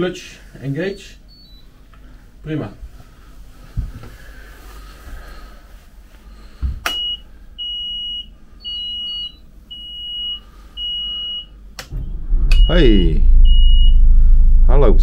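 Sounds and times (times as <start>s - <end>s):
high warning buzzer beeps: 7.0s - 11.5s.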